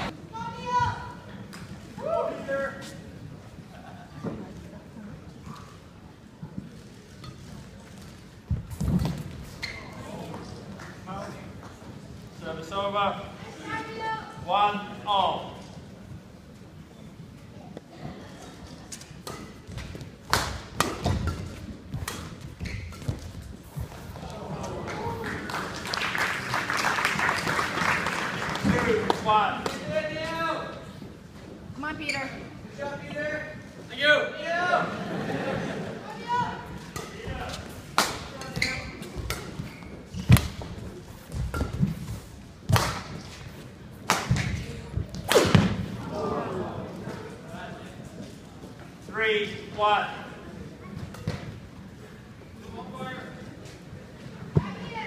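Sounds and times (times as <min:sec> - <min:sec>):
shoe squeaks: 0:09.4 - 0:10.2, 0:22.5 - 0:23.8, 0:32.0 - 0:32.6, 0:38.4 - 0:40.4
racket striking shuttlecock: 0:19.2 - 0:23.2, 0:42.7 - 0:43.2
racquet hitting shuttlecock: 0:19.2 - 0:23.4, 0:37.9 - 0:40.6, 0:41.3 - 0:42.1, 0:42.7 - 0:43.4, 0:44.0 - 0:45.8.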